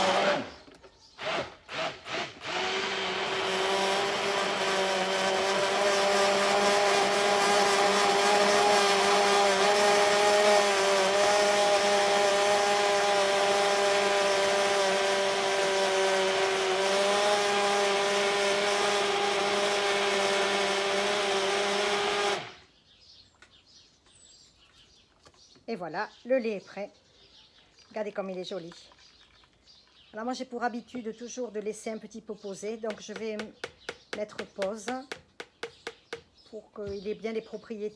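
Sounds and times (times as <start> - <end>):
electric hand blender running: 0.0 - 0.6, 1.2 - 22.6.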